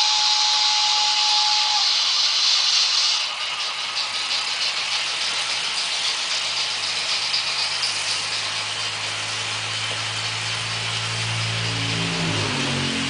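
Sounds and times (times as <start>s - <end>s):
model train wheels clattering: 1.2s - 10.4s
low motor hum: 3.0s - 13.0s.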